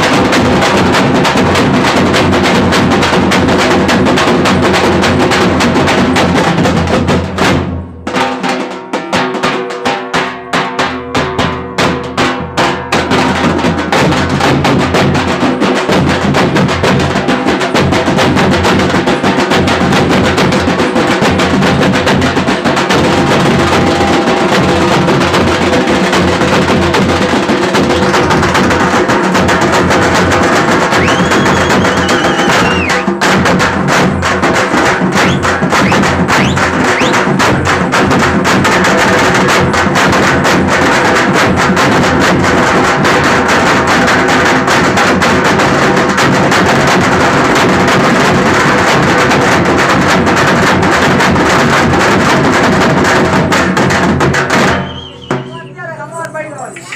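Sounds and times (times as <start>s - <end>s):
frame drums beaten with sticks: 0.0s - 56.9s
brief high tone: 23.3s - 25.2s.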